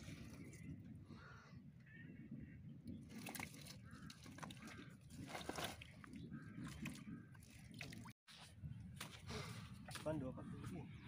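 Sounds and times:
crows cawing: 3.8s - 5.0s.

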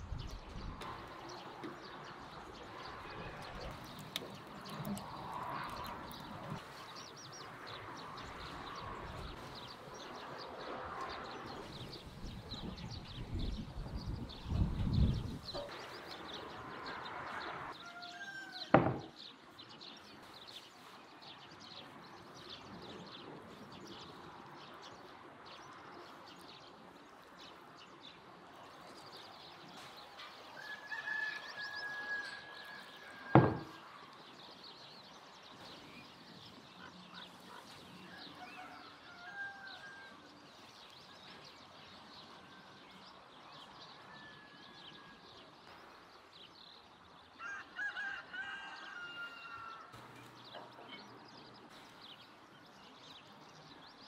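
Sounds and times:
birds chirping: 0.0s - 54.0s
sharp knock: 33.4s - 33.8s.

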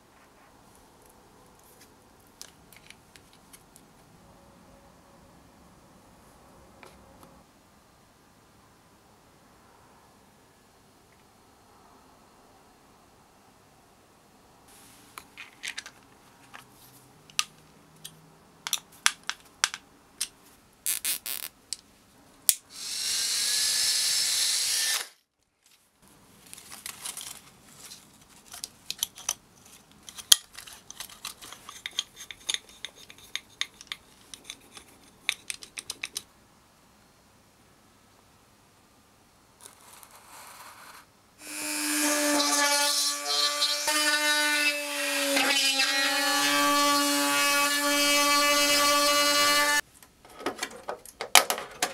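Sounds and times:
clicks of handling small parts: 2.3s - 3.9s, 15.2s - 20.4s, 26.5s - 36.3s
rotary tool drilling plastic: 22.8s - 25.2s
small motor spinning: 22.8s - 25.2s.

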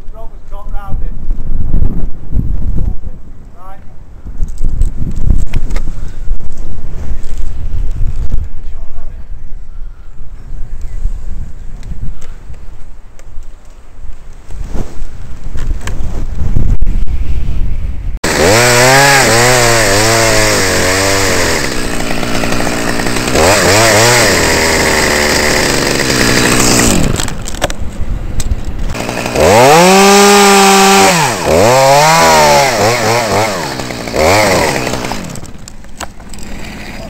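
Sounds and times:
chainsaw engine revving: 18.2s - 27.5s, 28.9s - 35.6s, 36.2s - 37.0s.

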